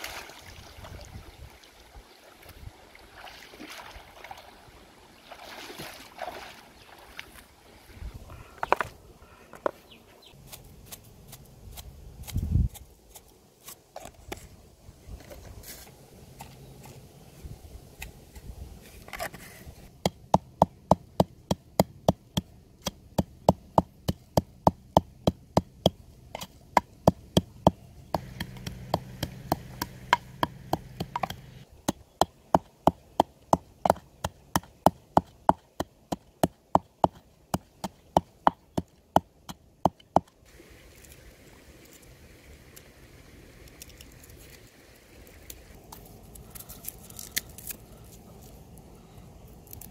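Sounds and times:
pestle pounding in wooden mortar: 26.8 - 40.3.

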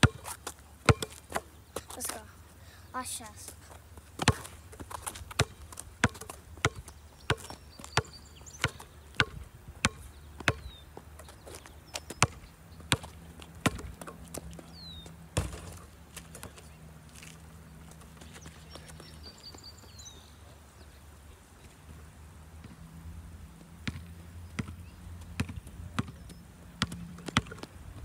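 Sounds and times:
basketball bouncing on asphalt: 0.0 - 2.2, 3.9 - 16.6, 23.6 - 27.8.

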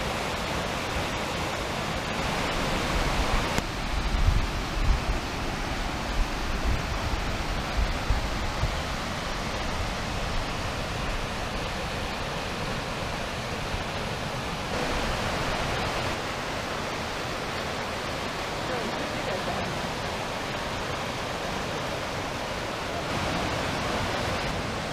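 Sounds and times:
creek rushing over rocks: 0.0 - 24.9.

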